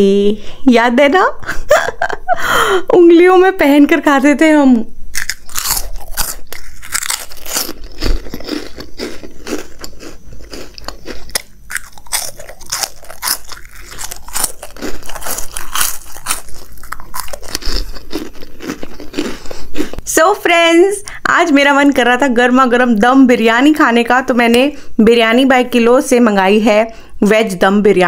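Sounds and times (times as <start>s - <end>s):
crunchy snack being chewed: 5.1s - 20.1s.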